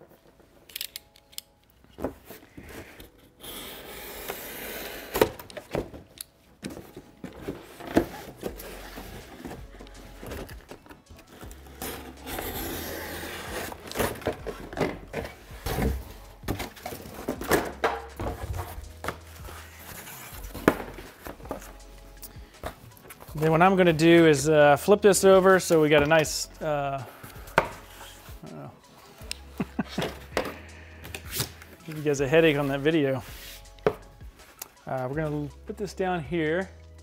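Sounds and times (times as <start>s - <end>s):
cardboard rustling: 5.0s - 21.8s
blade scraping through cardboard: 11.4s - 14.3s.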